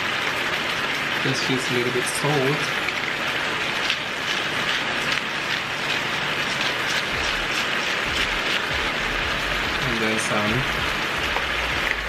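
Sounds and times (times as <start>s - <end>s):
chicken sizzling in frying pan: 0.0s - 12.0s
pepper grinder crunching: 3.4s - 12.0s.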